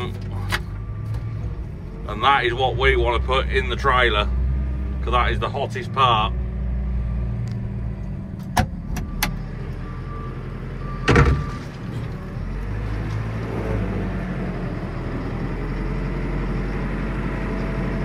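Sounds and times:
diesel engine running: 0:00.0 - 0:18.0
loud clunk: 0:11.0 - 0:12.0.

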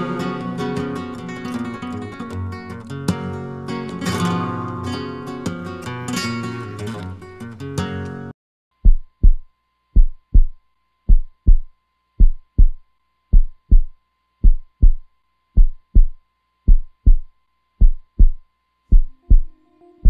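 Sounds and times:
slow heartbeat thumps: 0:08.8 - 0:19.6
faint high tone: 0:19.1 - 0:20.0.

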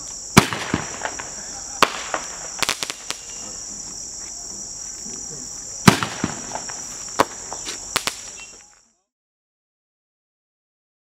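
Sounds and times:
firework bangs and pops: 0:00.0 - 0:04.0, 0:05.8 - 0:08.6
crickets trilling: 0:00.0 - 0:09.1.

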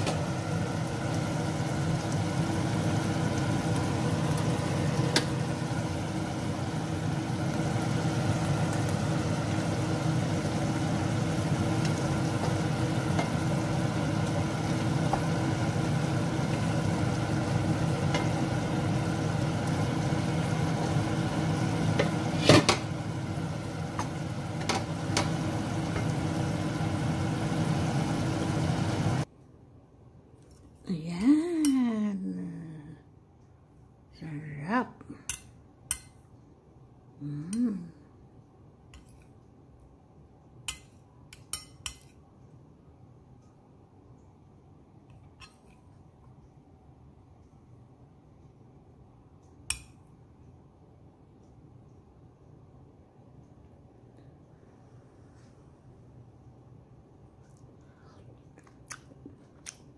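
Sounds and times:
stew sizzling in a pan: 0:00.0 - 0:29.3
steady low hum: 0:00.0 - 0:59.9.

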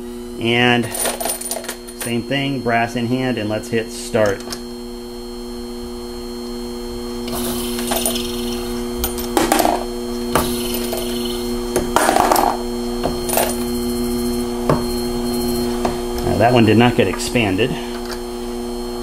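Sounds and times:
case trimmer motor hum: 0:04.1 - 0:18.8.

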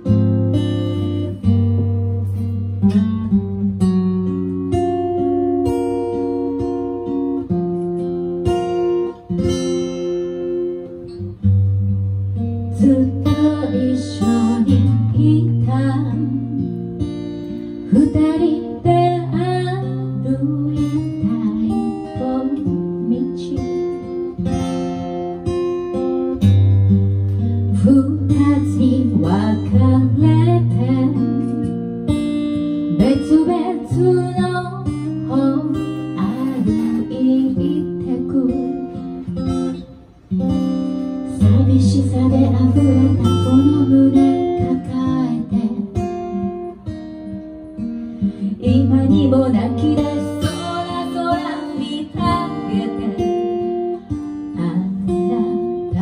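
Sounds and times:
strummed acoustic guitar: 0:00.0 - 0:56.0
woman singing: 0:12.7 - 0:26.0, 0:27.6 - 0:39.8, 0:41.1 - 0:47.2, 0:48.3 - 0:56.0.

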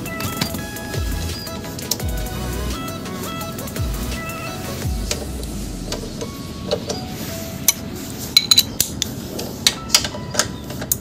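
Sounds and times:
socket wrench clinking on metal: 0:08.4 - 0:09.1.

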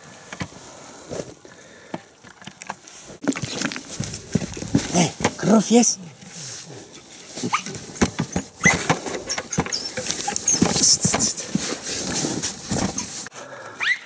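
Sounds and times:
footsteps on loose rock: 0:02.2 - 0:05.5, 0:07.4 - 0:13.3
stones clattering: 0:02.2 - 0:05.5.

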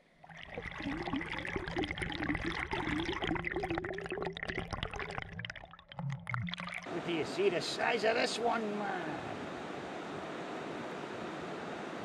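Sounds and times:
river water splashing and gurgling: 0:00.0 - 0:07.2.

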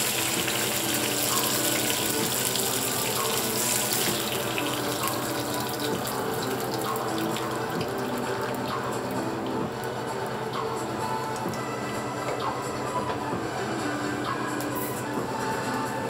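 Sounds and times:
fish sizzling in hot oil: 0:00.0 - 0:09.8.

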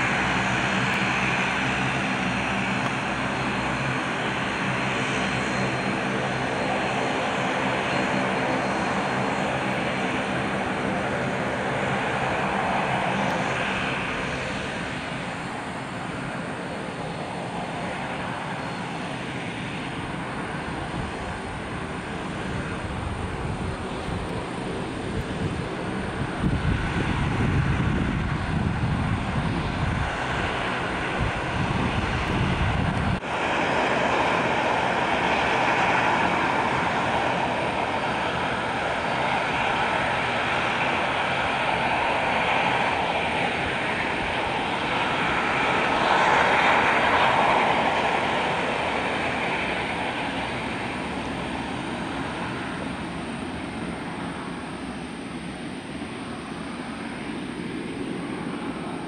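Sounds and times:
turboprop engines whining: 0:00.0 - 0:59.0.

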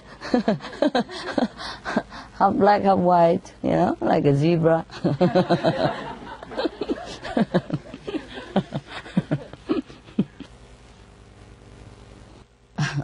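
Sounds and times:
faint room hum: 0:00.0 - 0:13.0
audience laughing: 0:05.0 - 0:10.5.

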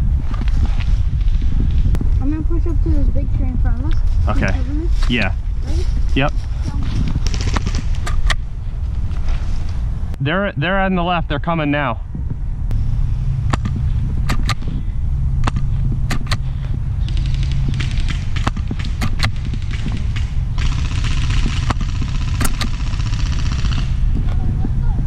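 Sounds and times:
steady low rumble: 0:00.0 - 0:25.0
full-auto airsoft rattling: 0:17.0 - 0:24.0
airsoft gun snaps: 0:22.4 - 0:22.7.

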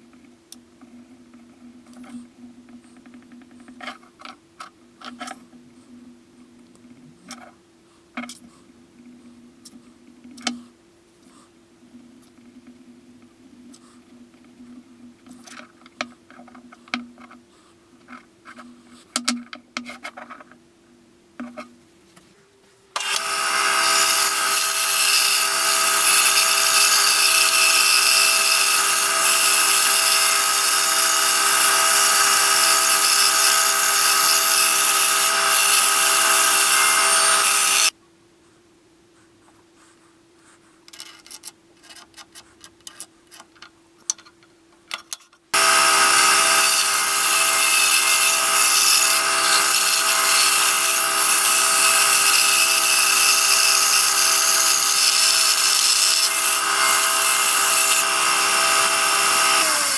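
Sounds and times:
band saw cutting wood: 0:23.0 - 0:37.9, 0:45.6 - 0:59.9
pencil scratching on wood: 0:39.2 - 0:43.5.

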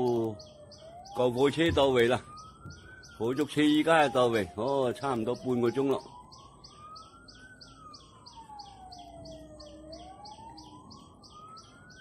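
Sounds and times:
faint fire engine siren wailing: 0:00.0 - 0:12.0.

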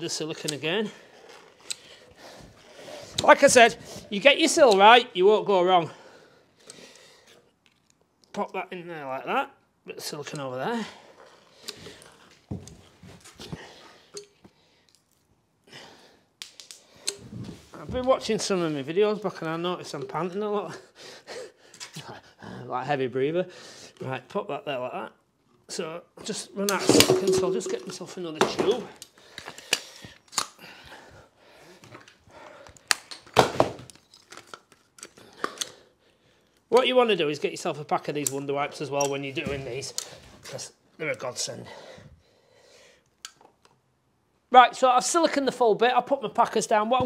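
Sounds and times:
person breathing: 0:05.9 - 0:07.5, 0:41.6 - 0:43.1.

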